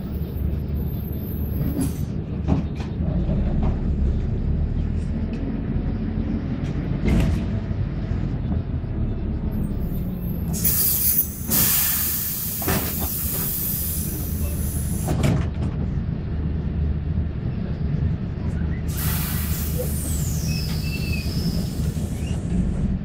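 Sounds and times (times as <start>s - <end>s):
bus engine running: 0.0s - 23.0s
compressed air hiss: 10.6s - 15.1s, 18.9s - 22.2s.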